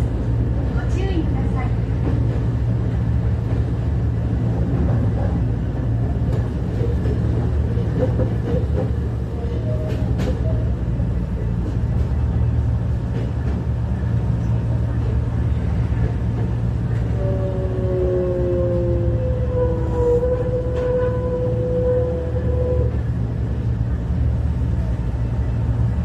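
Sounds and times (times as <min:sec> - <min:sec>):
train rumble and hum: 0:00.0 - 0:26.0.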